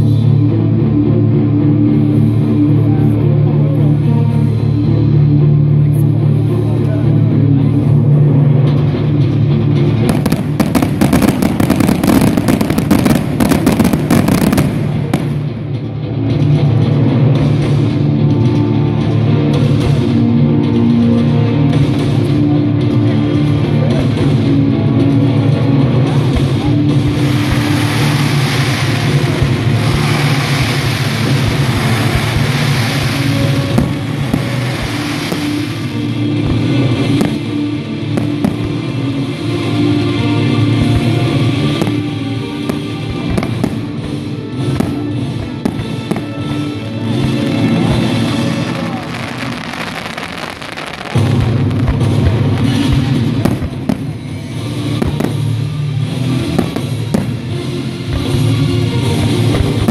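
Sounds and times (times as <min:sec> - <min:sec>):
music playing: 0:00.0 - 0:59.9
fireworks fountains hissing: 0:09.8 - 0:15.7, 0:25.4 - 0:59.9
fireworks pops and crackles: 0:10.0 - 0:15.6, 0:26.1 - 0:37.5, 0:38.2 - 0:38.8, 0:40.8 - 0:57.5, 0:58.1 - 0:59.9.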